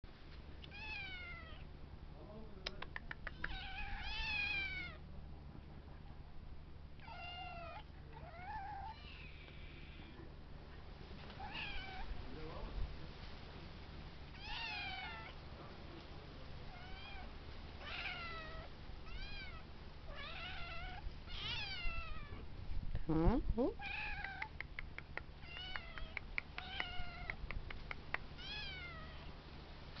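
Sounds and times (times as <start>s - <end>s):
kittens meowing: 3.2s - 5.0s, 7.0s - 10.2s, 14.4s - 15.4s, 16.7s - 22.4s, 23.8s - 24.7s, 25.4s - 29.3s
quick run of clicks: 24.2s - 28.3s.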